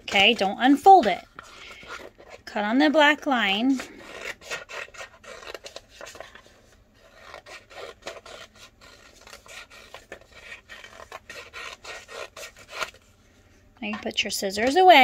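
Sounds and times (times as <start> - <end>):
scissors snipping paper: 7.0 - 13.0.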